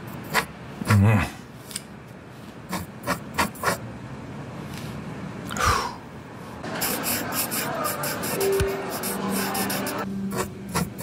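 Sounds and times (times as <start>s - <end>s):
pen scratching on paper: 0.1s - 0.5s, 2.7s - 3.8s, 6.8s - 11.0s.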